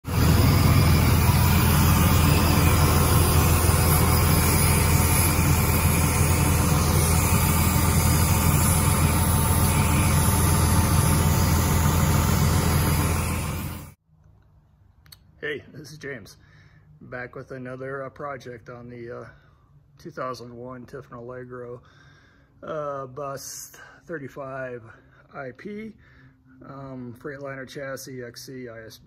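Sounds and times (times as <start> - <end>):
diesel engine running: 0.0 - 14.0
broad hiss: 0.1 - 13.9.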